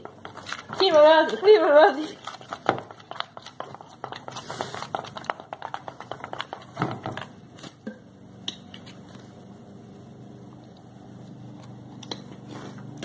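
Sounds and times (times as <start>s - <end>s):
spoon stirring in plastic bowl: 0.0s - 7.8s
faint low hum: 7.0s - 13.0s.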